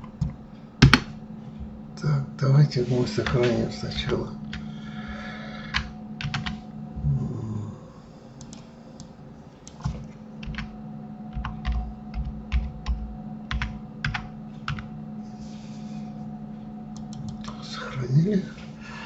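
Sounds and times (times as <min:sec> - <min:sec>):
steady low hum: 0:00.0 - 0:19.0
keyboard typing clicks: 0:05.7 - 0:06.6, 0:08.4 - 0:14.9, 0:17.0 - 0:17.6.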